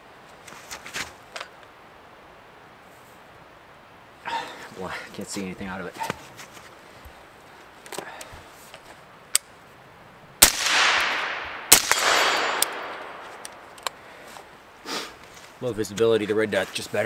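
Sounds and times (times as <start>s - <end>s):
gunshot echo: 10.4s - 13.7s
suppressed rifle shots: 10.4s - 13.9s.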